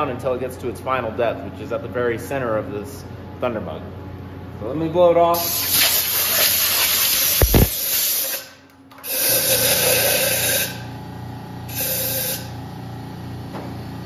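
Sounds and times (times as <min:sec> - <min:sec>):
air blow gun hissing: 0:05.4 - 0:08.5.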